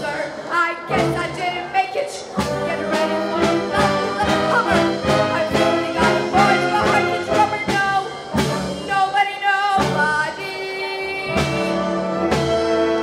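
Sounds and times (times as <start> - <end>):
woman singing: 0.0 - 12.2
percussion hits: 0.4 - 9.1
wind band playing: 0.9 - 9.2, 9.8 - 13.0.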